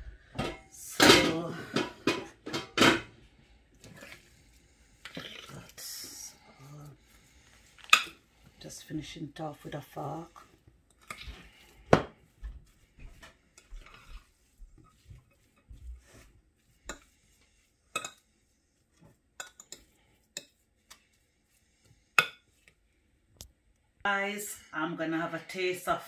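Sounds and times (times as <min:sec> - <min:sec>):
fork mashing potato in glass bowl: 0:12.4 - 0:22.8.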